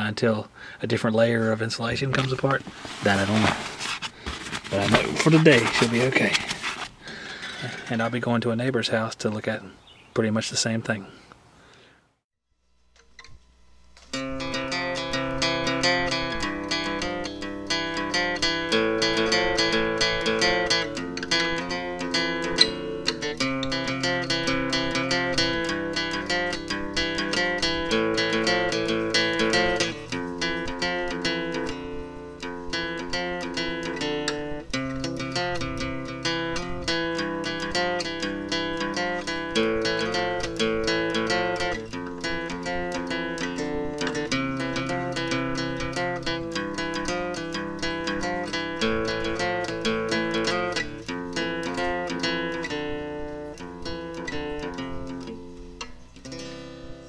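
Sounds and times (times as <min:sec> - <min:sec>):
acoustic guitar music: 0:00.0 - 0:09.6, 0:13.1 - 0:57.0.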